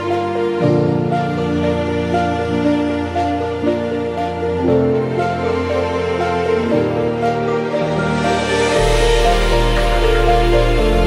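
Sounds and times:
slow music with low chords: 0:00.0 - 0:11.0.

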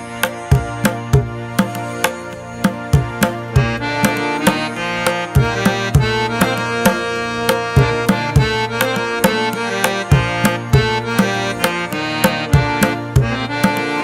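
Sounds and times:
sustained pitched melody: 0:00.0 - 0:14.0
hand drum beat: 0:00.2 - 0:14.0.

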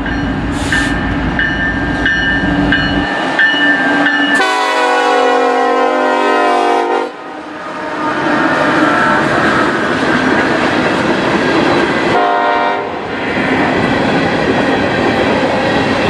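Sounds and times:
bell ringing: 0:00.0 - 0:04.5
diesel locomotives rumbling: 0:00.0 - 0:16.0
locomotive air horn chord: 0:04.4 - 0:08.4, 0:12.2 - 0:12.9.

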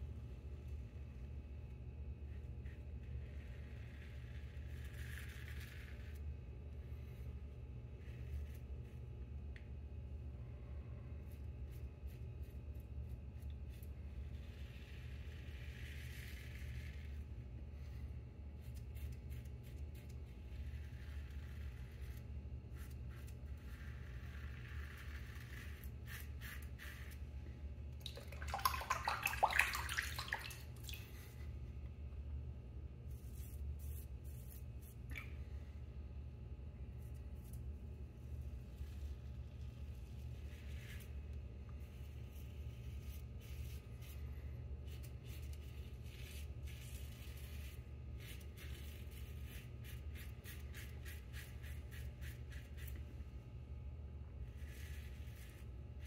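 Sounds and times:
razor scraping stubble: 0:18.6 - 0:27.2
water splashing in sink: 0:28.0 - 0:31.3.

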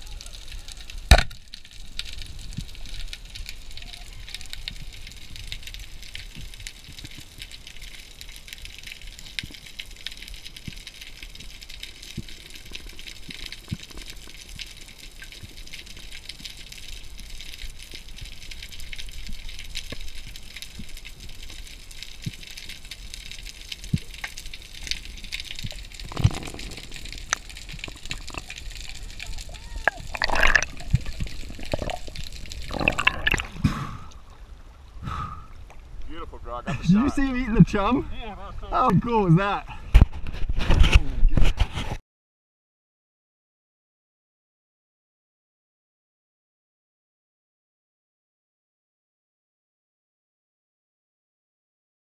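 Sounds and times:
crackling clicks: 0:00.2 - 0:34.3
speargun shot underwater: 0:01.0 - 0:01.4, 0:29.8 - 0:32.1.

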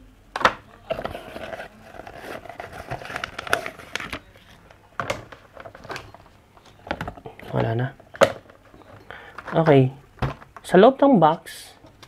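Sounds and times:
packaging crinkling and crackling: 0:00.9 - 0:09.8.

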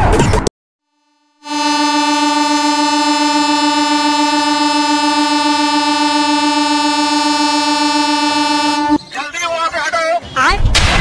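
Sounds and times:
locomotive air horn blast: 0:01.0 - 0:09.0.

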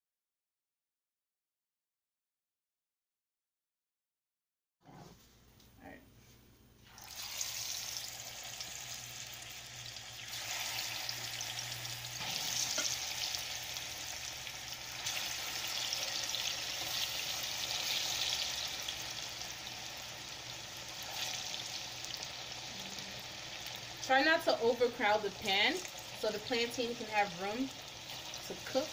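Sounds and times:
frying in hot oil sizzling: 0:06.9 - 0:28.9.

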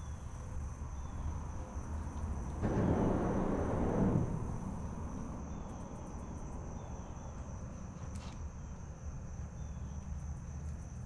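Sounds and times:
low rumble: 0:02.6 - 0:05.8.

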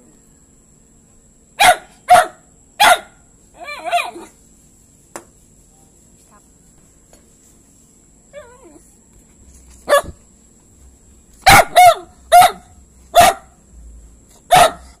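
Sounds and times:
dog barking: 0:01.6 - 0:04.3, 0:09.8 - 0:10.2, 0:11.4 - 0:13.6, 0:14.5 - 0:15.0.

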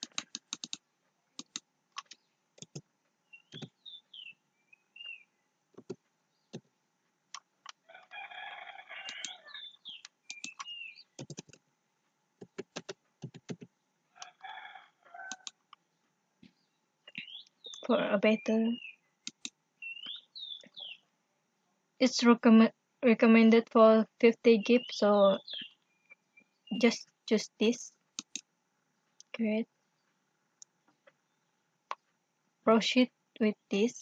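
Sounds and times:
computer keyboard and mouse clicks: 0:00.0 - 0:00.8, 0:01.4 - 0:02.8, 0:03.5 - 0:03.7, 0:05.8 - 0:06.7, 0:10.0 - 0:11.6, 0:12.4 - 0:13.7, 0:15.3 - 0:15.8, 0:19.3 - 0:19.6, 0:28.2 - 0:28.4
bird chirping and calling: 0:03.3 - 0:05.3, 0:09.0 - 0:11.2, 0:17.1 - 0:19.0, 0:19.8 - 0:21.0, 0:24.6 - 0:25.8.

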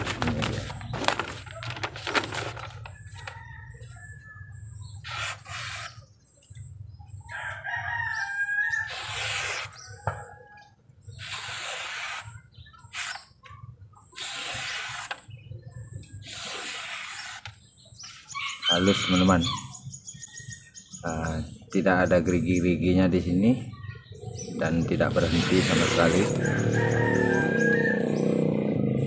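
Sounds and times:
rooster crowing: 0:03.0 - 0:04.6, 0:07.3 - 0:09.1, 0:18.4 - 0:19.6, 0:26.3 - 0:28.6
knife slicing paper: 0:08.9 - 0:09.8, 0:11.2 - 0:12.3, 0:14.2 - 0:15.2, 0:16.2 - 0:17.5, 0:25.1 - 0:26.4.

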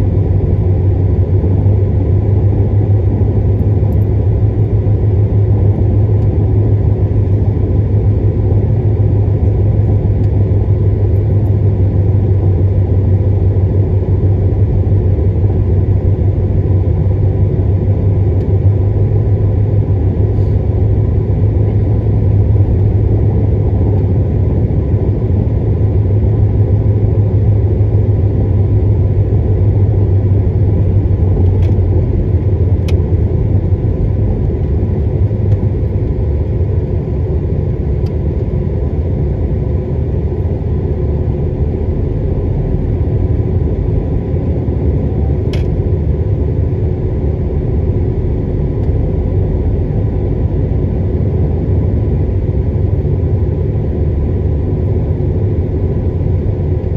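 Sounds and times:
car engine and tyres rumbling: 0:00.0 - 0:56.9.

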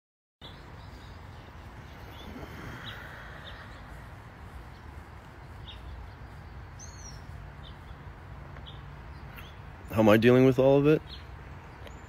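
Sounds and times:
faint bird chirps: 0:00.4 - 0:04.1
outdoor background hiss: 0:00.4 - 0:12.0.

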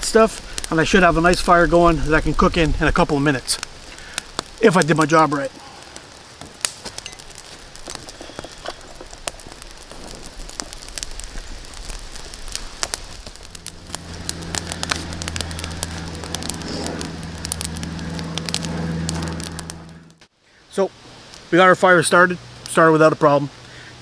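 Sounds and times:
campfire crackling and popping: 0:00.0 - 0:23.9
low steady hum: 0:07.0 - 0:20.2.

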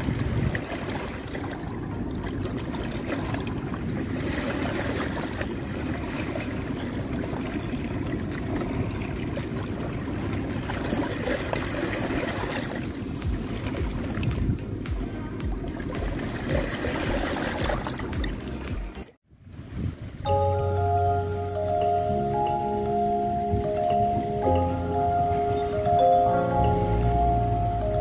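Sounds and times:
waves splashing against rocks: 0:00.0 - 0:19.8.

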